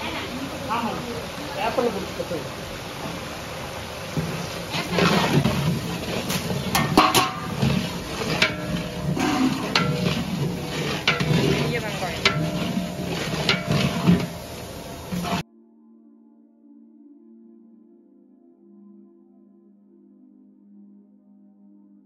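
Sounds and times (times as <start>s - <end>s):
faint frying sizzle: 0.0s - 15.4s
metal ladle scraping a pot: 4.2s - 15.4s.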